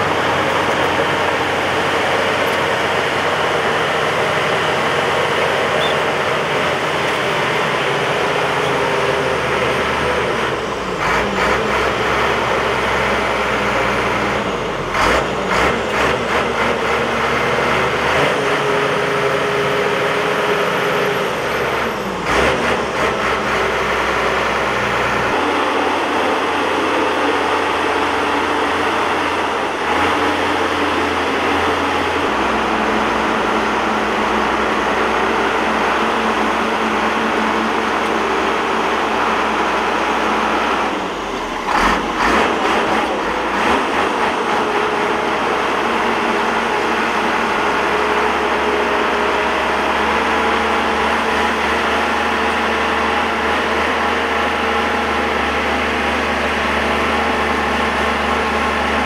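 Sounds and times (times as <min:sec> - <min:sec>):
bulldozer clatter: 0:00.0 - 0:59.0
bulldozer diesel engine under load: 0:00.0 - 0:59.0.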